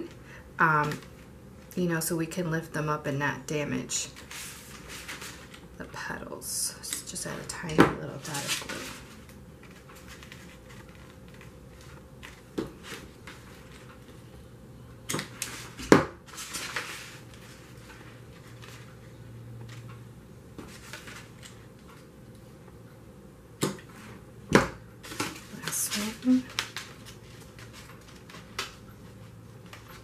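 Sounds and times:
paper rustling on tabletop: 4.1s - 5.7s, 8.2s - 14.3s, 15.2s - 19.9s, 20.6s - 22.1s, 25.0s - 30.0s.

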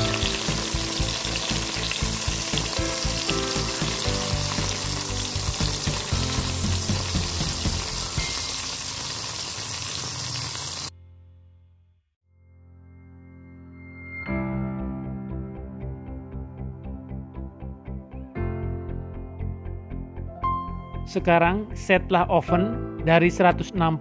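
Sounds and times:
fat sizzling in a skillet: 0.0s - 10.9s.

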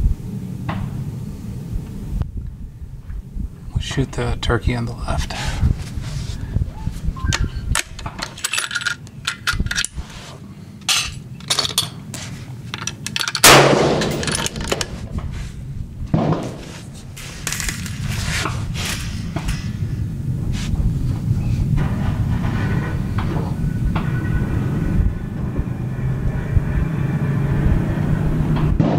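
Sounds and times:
rifle shot: 13.4s - 14.5s, 16.1s - 16.6s.

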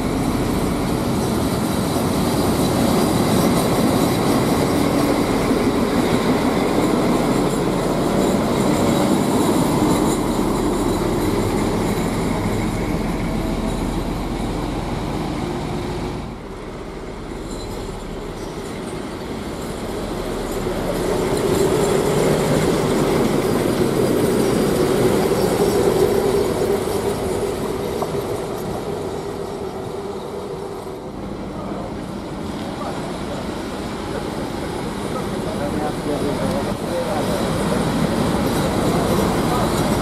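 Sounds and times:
diesel locomotive engine drone: 0.0s - 40.0s.

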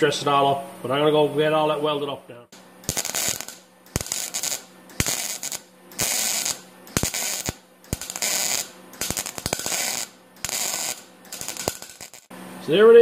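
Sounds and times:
welding arc crackling: 2.6s - 12.3s
welder click: 2.8s - 12.3s.

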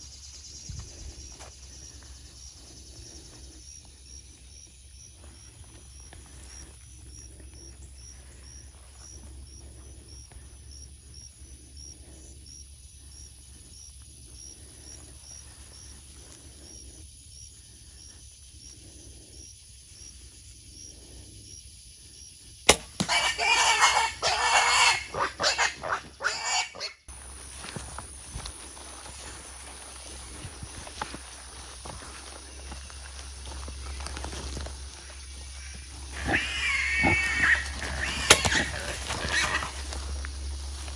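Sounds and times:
bow shot crack: 22.7s - 23.2s
hogs squealing: 23.0s - 27.1s, 35.0s - 40.0s.

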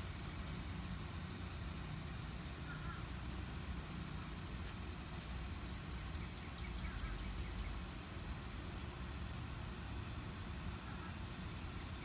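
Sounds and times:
low engine rumble: 0.0s - 12.0s
bird chirps: 6.1s - 7.8s.

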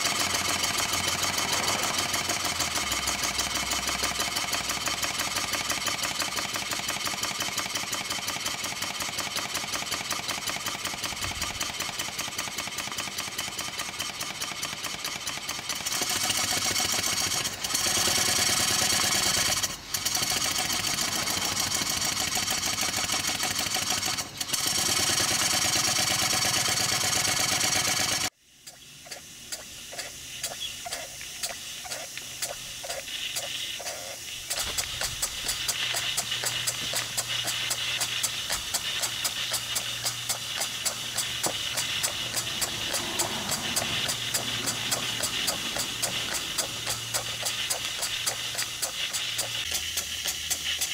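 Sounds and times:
model steam engines running: 0.0s - 50.9s
clattering valve gear: 30.4s - 50.9s.

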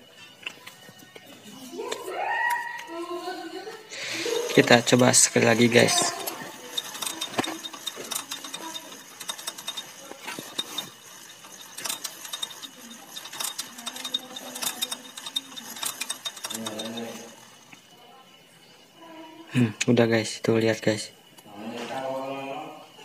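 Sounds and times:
engine gears clicking and clattering: 4.0s - 17.9s.

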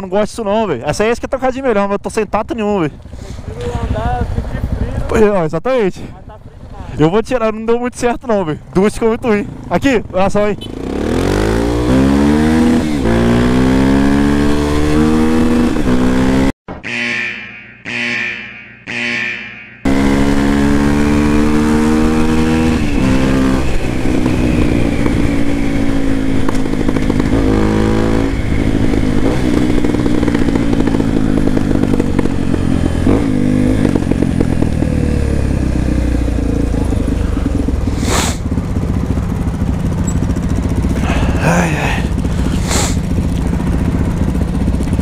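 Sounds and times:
motorcycle engine running: 2.7s - 17.0s, 19.8s - 45.0s
short sharp sounds: 16.7s - 20.1s.

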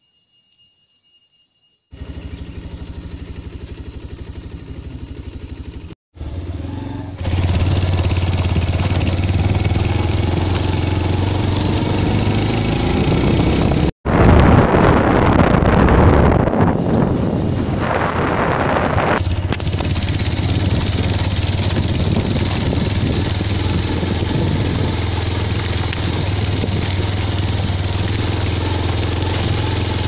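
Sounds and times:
vehicle engine pulsing: 1.9s - 13.9s, 15.1s - 30.0s
wind buffeting microphone: 8.3s - 30.0s.

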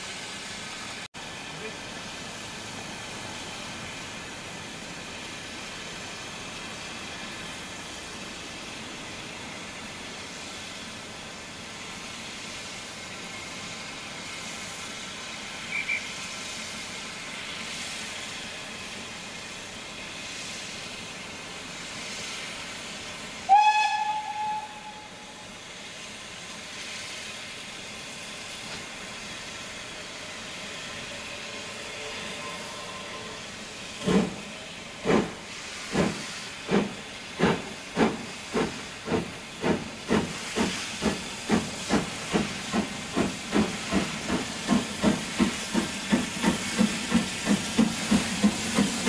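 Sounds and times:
steam locomotive hissing: 0.0s - 49.0s
steam whistle blast: 23.4s - 25.5s, 31.8s - 33.5s.

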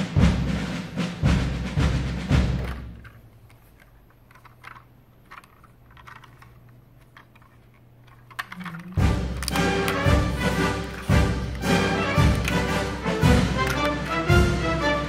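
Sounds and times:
plastic toy clicks and taps: 2.6s - 12.8s, 13.4s - 14.2s
music track: 8.6s - 15.0s.

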